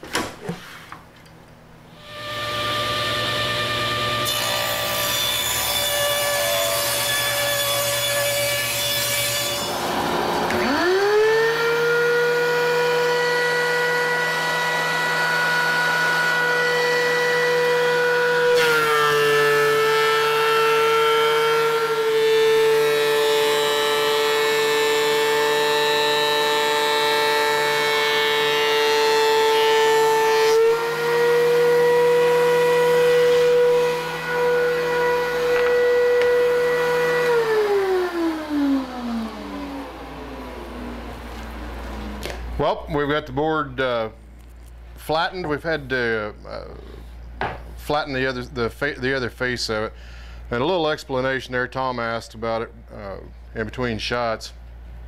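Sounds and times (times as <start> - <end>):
planer motor whine: 2.0 - 4.6, 9.6 - 42.5
planer cutting wood: 2.0 - 42.4
power tool running: 2.0 - 42.6.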